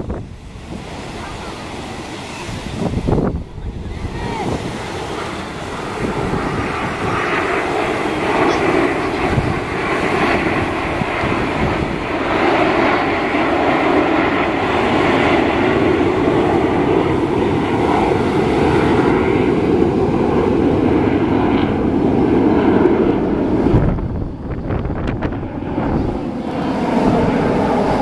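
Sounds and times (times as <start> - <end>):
jet engines passing overhead: 0.0 - 28.0
wind buffeting microphone: 0.0 - 28.0.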